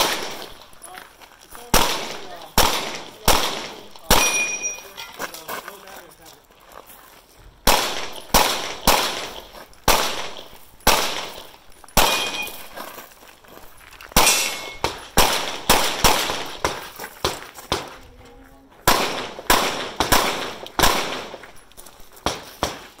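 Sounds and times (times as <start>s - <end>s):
handgun shots with echo: 0.0s - 0.6s, 1.7s - 4.8s, 7.6s - 12.7s, 14.2s - 17.9s, 18.8s - 21.4s.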